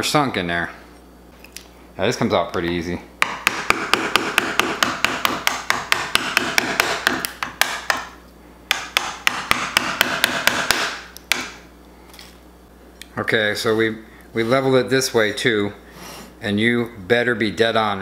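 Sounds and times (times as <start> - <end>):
chisel knocking into wood: 3.2 - 8.1, 8.7 - 11.6.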